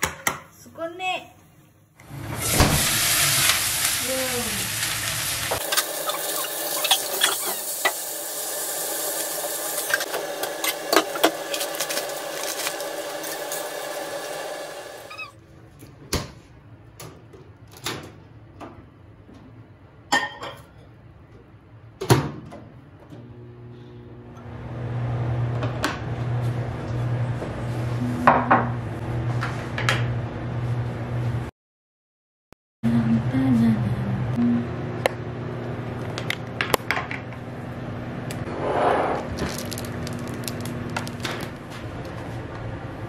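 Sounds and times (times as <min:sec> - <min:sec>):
microwave oven humming: 0:02.0 - 0:15.5, 0:22.6 - 0:31.5, 0:32.9 - 0:38.6, 0:39.2 - 0:43.0
food sizzling in a frying pan: 0:02.2 - 0:15.2.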